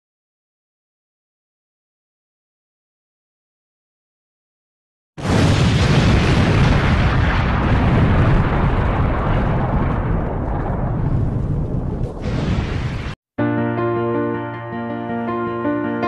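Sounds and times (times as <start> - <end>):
explosion with hissing tail: 5.2 - 13.2.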